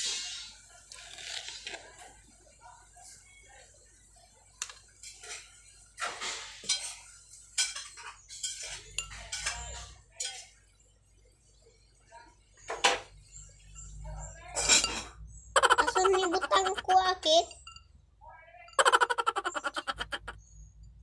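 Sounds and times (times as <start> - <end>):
cutlery clinking against a dish: 4.6 - 10.6, 13.8 - 15.2.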